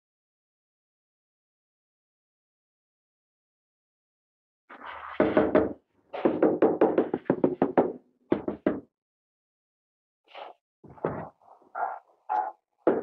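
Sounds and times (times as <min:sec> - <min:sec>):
rapid knocking on tile slab: 0:05.2 - 0:08.8.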